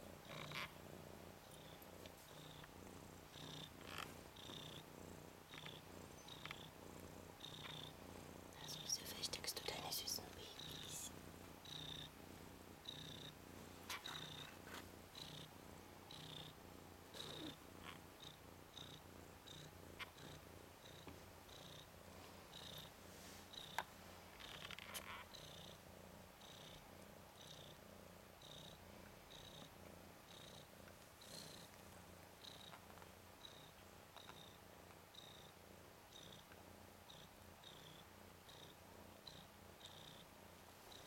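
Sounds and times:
cat purring: 0:00.0 - 0:41.0.

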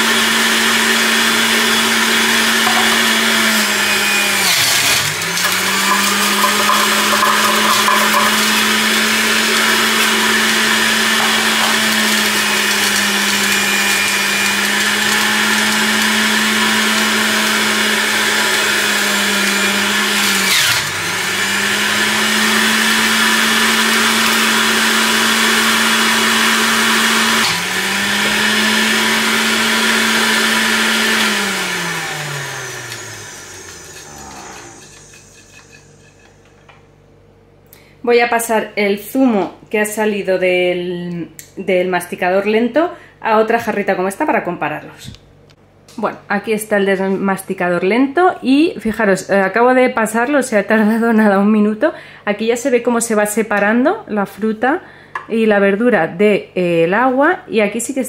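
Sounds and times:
juicer motor whirring: 0:00.0 - 0:36.5.

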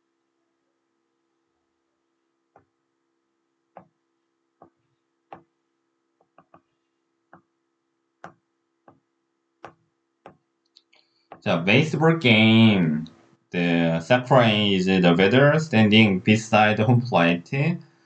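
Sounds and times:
stylus tapping tablet screen: 0:04.6 - 0:05.6, 0:06.2 - 0:07.5, 0:08.2 - 0:10.5
faint steady hum: 0:11.0 - 0:18.0.

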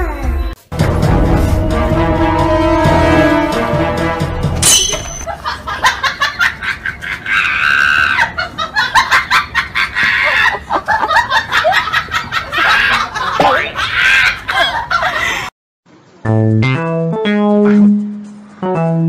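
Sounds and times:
people laughing: 0:05.3 - 0:15.5.

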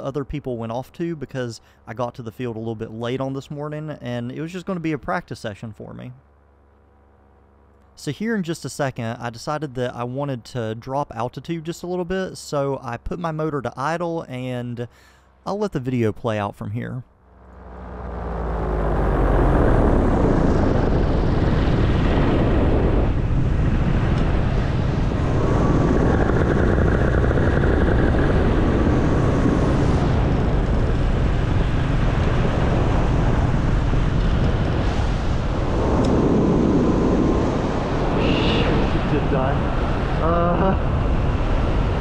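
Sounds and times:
wind rush on microphone: 0:17.8 - 0:42.0.

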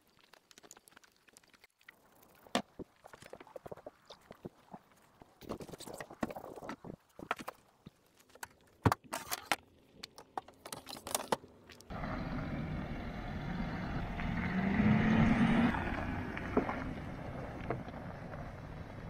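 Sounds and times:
tyres on gravel: 0:00.0 - 0:19.0
diesel engine driving past: 0:11.9 - 0:19.0.

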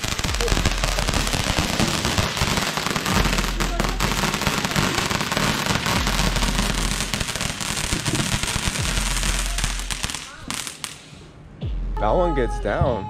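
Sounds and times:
rapid firework crackling: 0:00.0 - 0:11.2
firework sparks hissing: 0:00.0 - 0:11.3.

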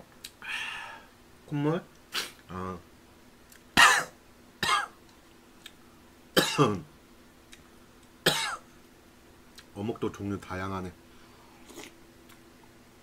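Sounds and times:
man coughing: 0:03.8 - 0:05.0, 0:06.4 - 0:06.8, 0:08.3 - 0:08.6.

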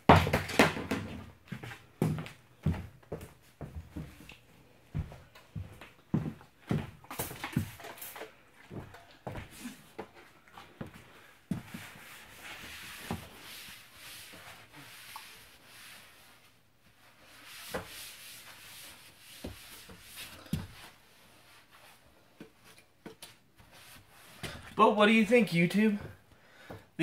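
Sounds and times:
hand rubbing wooden floor: 0:11.5 - 0:24.6.

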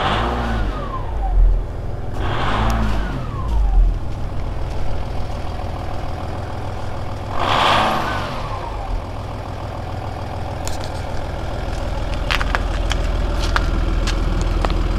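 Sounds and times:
diesel engine idling: 0:00.0 - 0:14.9.

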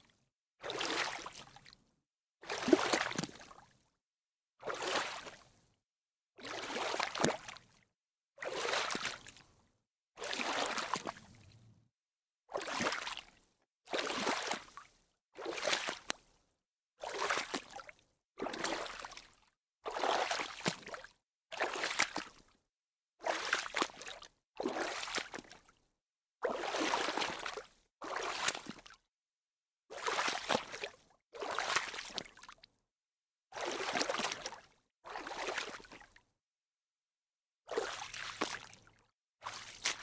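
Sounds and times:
water splashing: 0:39.4 - 0:40.0.

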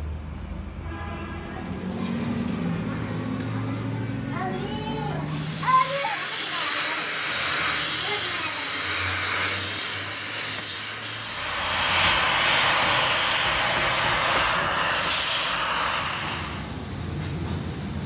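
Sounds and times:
gas torch flame hissing: 0:05.3 - 0:17.9.

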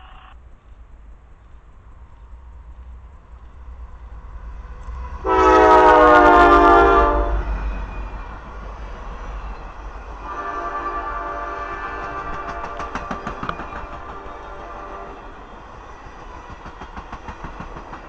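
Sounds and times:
train cars rumbling past: 0:00.4 - 0:18.0
locomotive air horn blast: 0:05.2 - 0:07.5, 0:10.2 - 0:13.2, 0:14.1 - 0:15.3.

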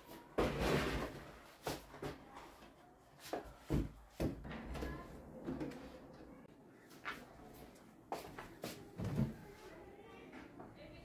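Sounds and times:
boxes scraping and rustling: 0:00.0 - 0:01.9.

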